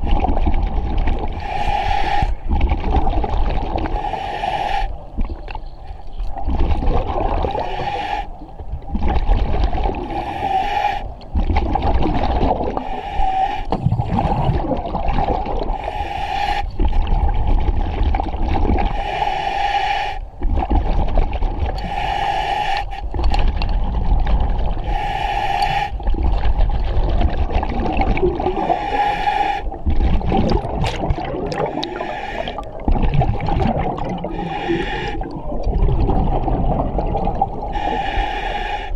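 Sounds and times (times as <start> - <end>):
hissing regulator inhale: 1.4 - 2.4, 3.9 - 5.0, 7.6 - 8.4, 10.1 - 11.1, 12.8 - 13.9, 15.8 - 16.8, 21.8 - 23.1, 24.8 - 26.0, 28.6 - 29.8, 31.7 - 32.7, 34.2 - 35.4, 37.7 - 38.9
bubbling exhale: 9.0 - 38.9.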